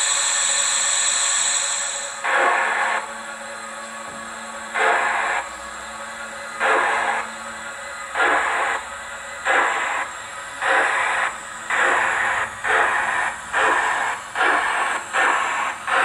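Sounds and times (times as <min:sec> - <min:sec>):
steady steam hiss: 0:00.0 - 0:03.1, 0:08.2 - 0:16.0
model locomotive exhaust chuffs: 0:00.0 - 0:16.0.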